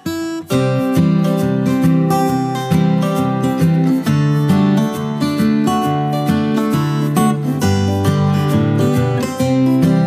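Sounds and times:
strummed acoustic guitar music: 0:00.0 - 0:10.0.

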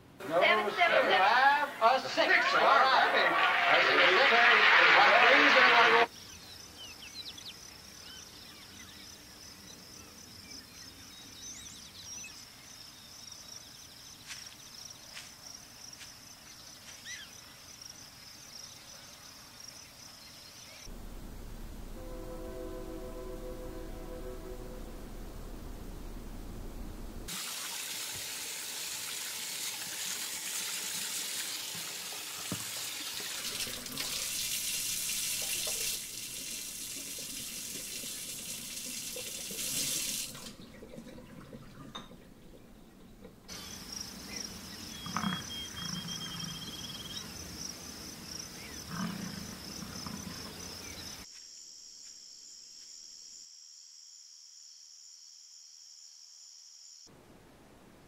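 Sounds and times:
rushing water: 0:27.3 - 0:42.8
high pulsing insect trill: 0:43.5 - 0:57.1.

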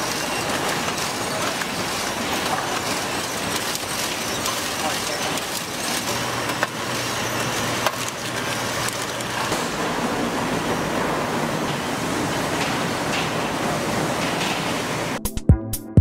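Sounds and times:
factory machinery hiss: 0:08.6 - 0:15.2.

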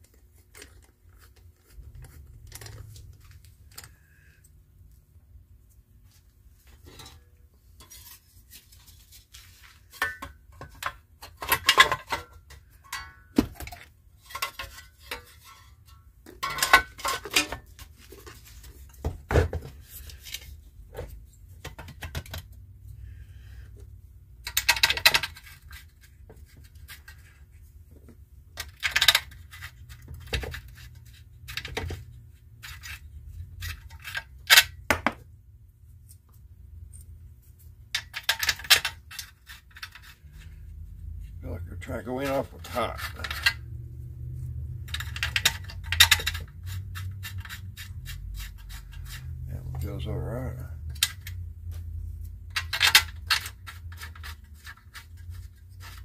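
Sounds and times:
metal parts clinking: 0:42.5 - 0:43.7, 0:44.8 - 0:46.5, 0:52.5 - 0:54.3.

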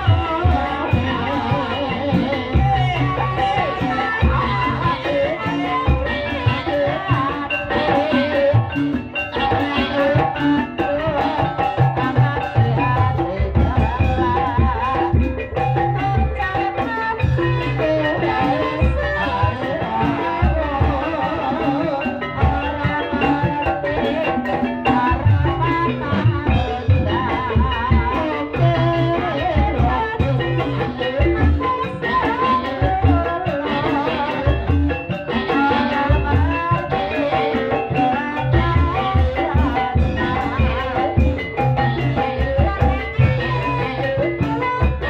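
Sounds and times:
drums: 0:00.0 - 0:45.0
tuned percussion melody: 0:00.0 - 0:45.0.

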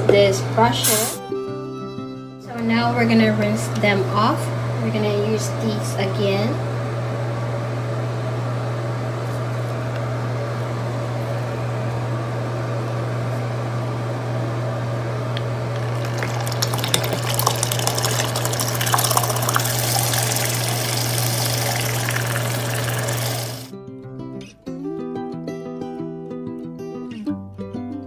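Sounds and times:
spinner motor humming: 0:15.1 - 0:23.7.

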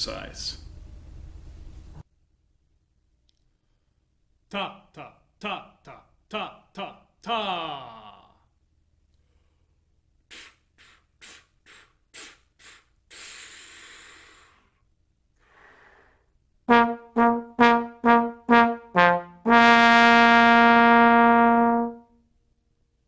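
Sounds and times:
person exhaling and inhaling: 0:09.2 - 0:16.4
tongued air puffs: 0:10.3 - 0:14.8
trombone short detached notes: 0:16.7 - 0:22.0.

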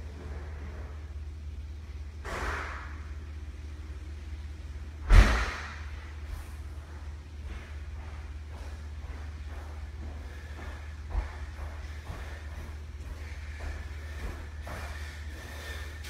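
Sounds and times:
steady low hum: 0:00.0 - 0:16.0
loud thump with hiss: 0:02.2 - 0:02.9, 0:05.0 - 0:05.9.

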